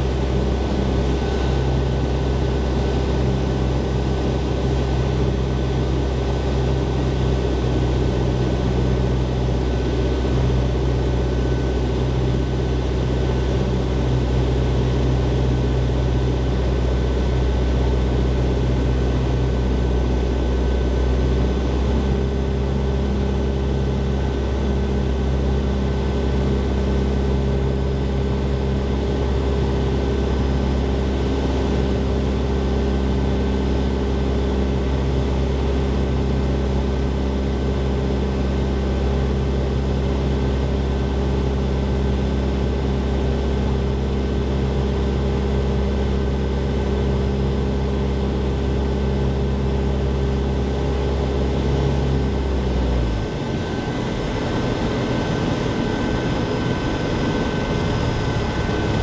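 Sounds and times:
aircraft engine and propeller droning: 0.0 - 59.0
rush of air over airframe: 53.2 - 59.0.

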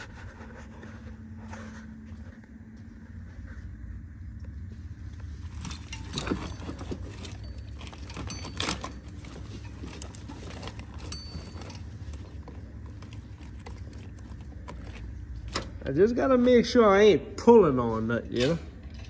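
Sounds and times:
steady low hum: 0.0 - 19.0
metallic clinks of tools: 5.5 - 12.8.

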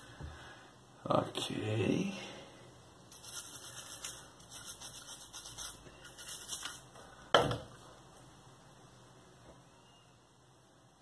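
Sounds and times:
brush scrubbing gun parts: 3.1 - 6.9.

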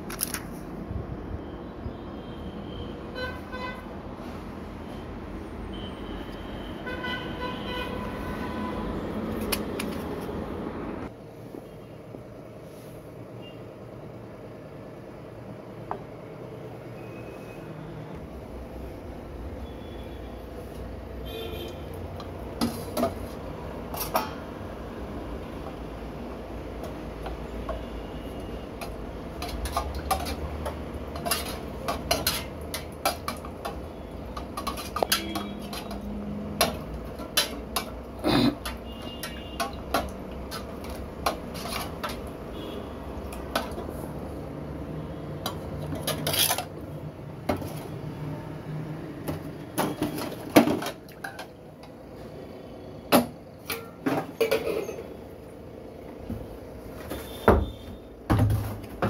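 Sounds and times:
metal pots and utensils clinking: 22.5 - 24.5, 28.8 - 42.4, 45.4 - 46.7, 49.8 - 51.6, 53.2 - 55.2.

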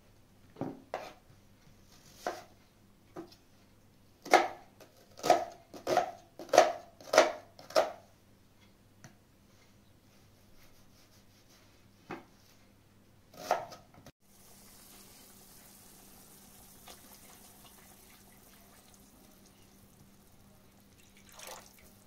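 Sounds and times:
knife chopping on cutting board: 5.2 - 8.0, 13.4 - 13.8.

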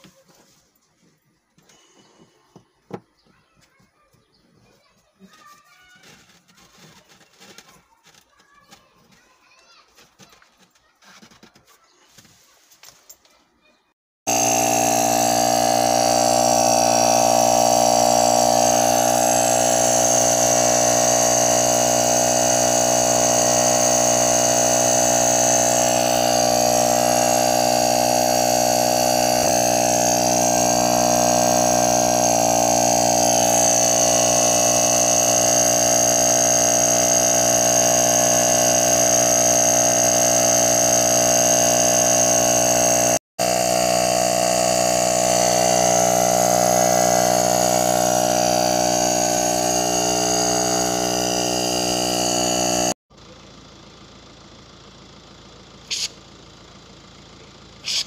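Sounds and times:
air compressor motor buzzing: 14.2 - 53.0.

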